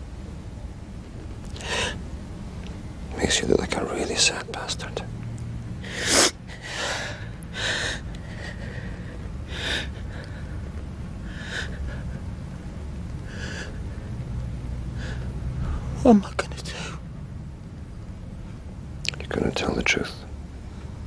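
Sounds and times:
man sobbing: 5.9 - 13.9.

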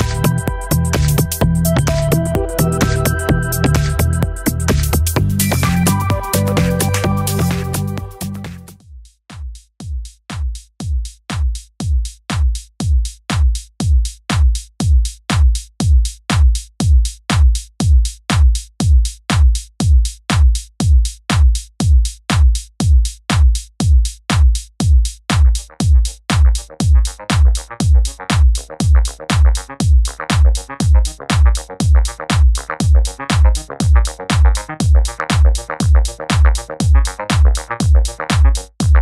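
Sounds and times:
electronic music with kick drum: 0.0 - 39.0.

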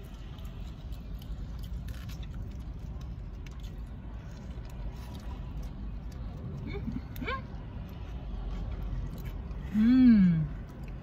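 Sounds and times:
crunchy chewing: 0.0 - 11.0
low steady rumble: 0.0 - 11.0.

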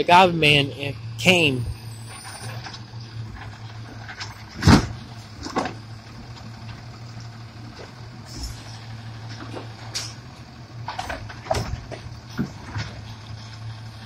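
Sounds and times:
garbage truck diesel engine: 0.0 - 14.0.

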